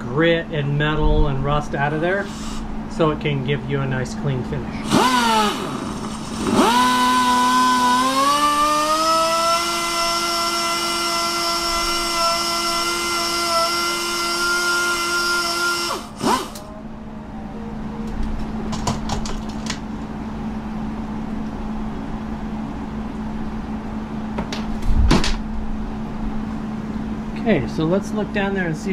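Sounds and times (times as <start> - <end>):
electric drill motor whine: 4.8 - 16.7.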